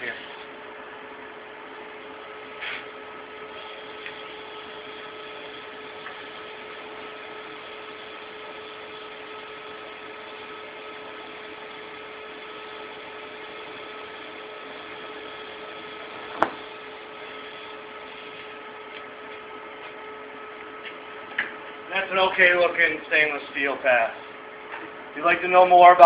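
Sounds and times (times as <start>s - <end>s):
welder hiss and hum: 2.2s - 20.1s.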